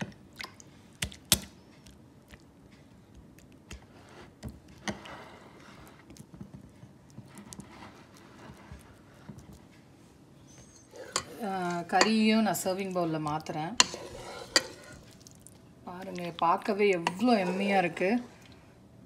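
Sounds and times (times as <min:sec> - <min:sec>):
wet fingers squishing dough: 0:00.0 - 0:10.0.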